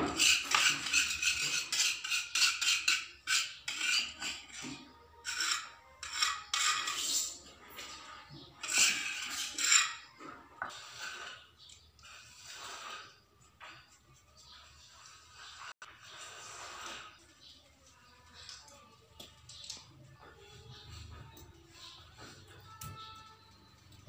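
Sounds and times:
metal spoon scraping stone: 0:00.0 - 0:17.6.

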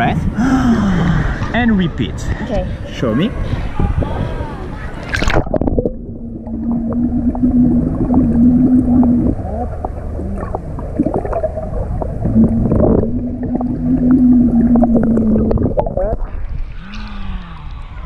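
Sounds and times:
steady low hum: 0:00.0 - 0:18.0
underwater bubbling: 0:02.7 - 0:18.0.

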